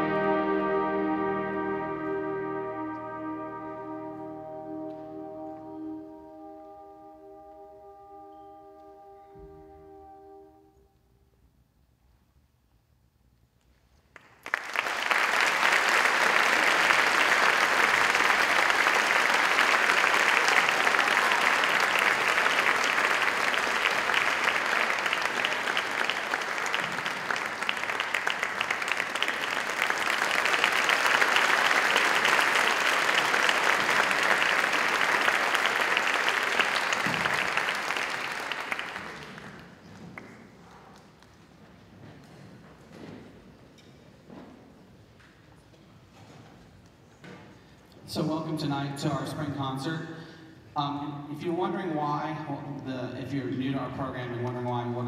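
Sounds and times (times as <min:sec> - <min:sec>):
audience applauding: 0:14.1 - 0:41.4.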